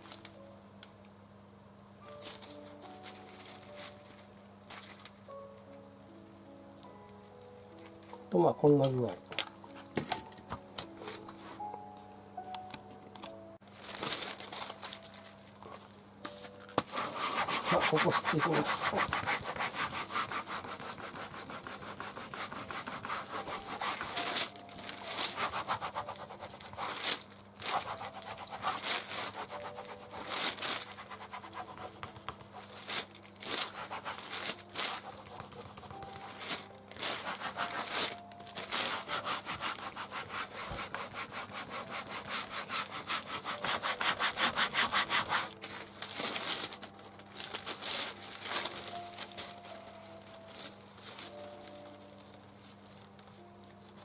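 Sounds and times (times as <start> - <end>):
baren rubbing over paper: 16.3 - 46.7.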